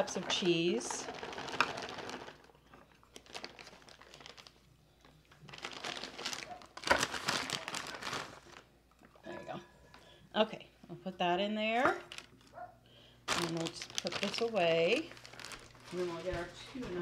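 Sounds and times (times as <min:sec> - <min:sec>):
plastic bag crinkling: 0:00.0 - 0:08.7, 0:12.0 - 0:17.0.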